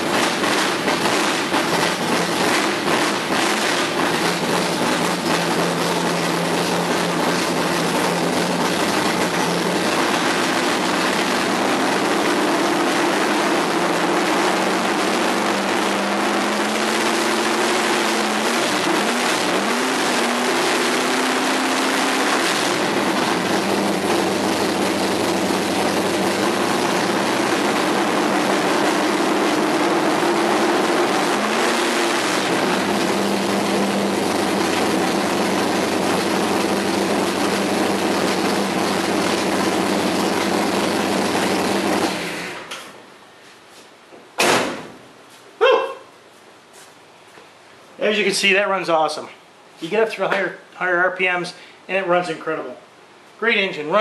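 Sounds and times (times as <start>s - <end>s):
loud vee eight engine revving: 0.0s - 42.6s.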